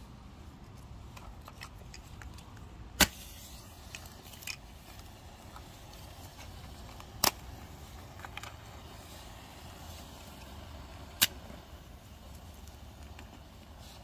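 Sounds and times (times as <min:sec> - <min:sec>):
match striking and fizzing: 0:03.0 - 0:14.0.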